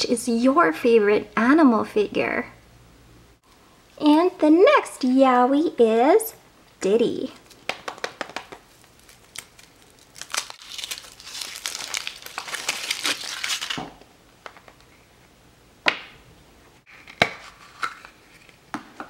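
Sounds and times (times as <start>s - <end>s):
chocolate shell cracking: 7.4s - 13.8s
foil wrapper crinkling: 7.4s - 13.9s.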